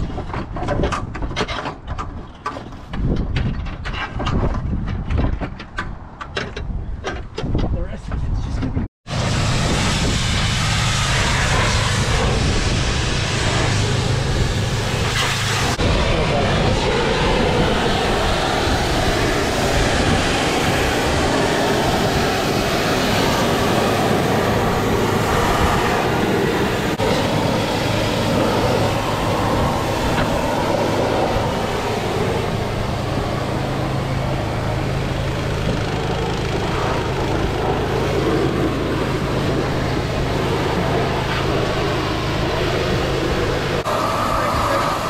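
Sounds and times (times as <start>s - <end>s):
motor humming and rushing: 9.1s - 45.0s.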